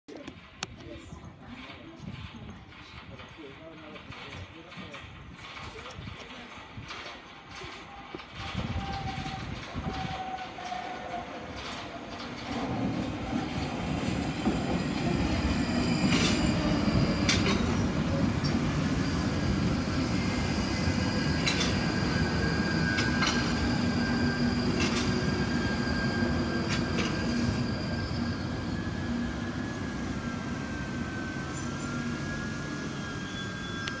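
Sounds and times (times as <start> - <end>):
train wheels rumbling on rail: 0.1 - 34.0
wheels clacking over rail joints: 0.2 - 20.2, 20.8 - 27.8
high brake squeal: 14.8 - 34.0.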